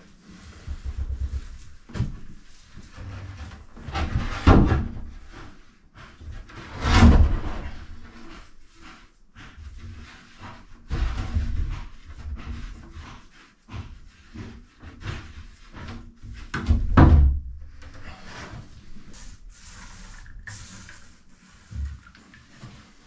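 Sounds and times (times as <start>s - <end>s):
wood knocking and scraping on wood: 13.7s - 19.2s
scratchy rustle: 18.0s - 23.0s.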